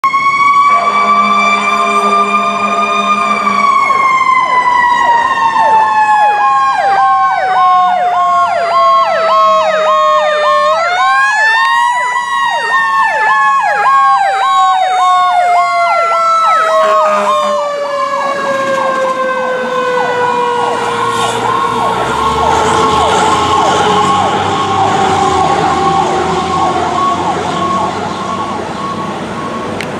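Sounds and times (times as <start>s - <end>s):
wailing fire engine siren: 0.0s - 29.9s
yelping siren: 0.0s - 29.9s.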